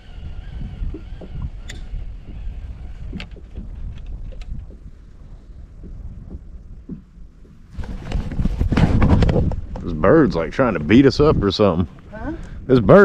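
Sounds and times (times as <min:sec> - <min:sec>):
wind rumbling on microphone: 0:00.0 - 0:13.0
small knocks and clicks: 0:03.1 - 0:04.9.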